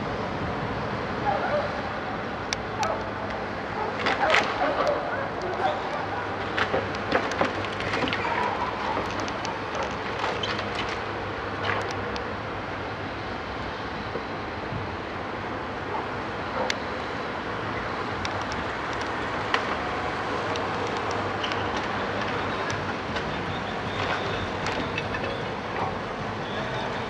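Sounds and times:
timbers cracking and dropping: 6.4 - 11.9.

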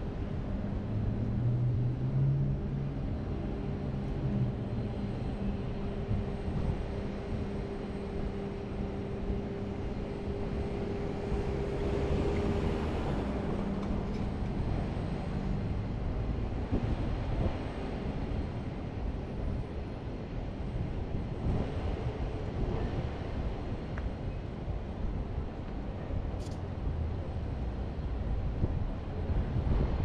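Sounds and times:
traffic hum: 0.0 - 19.8
cars driving past: 10.7 - 15.8.

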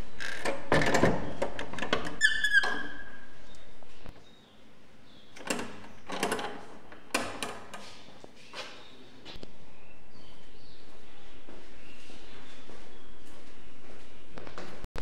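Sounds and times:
metal door latch clinking: 5.4 - 7.8.

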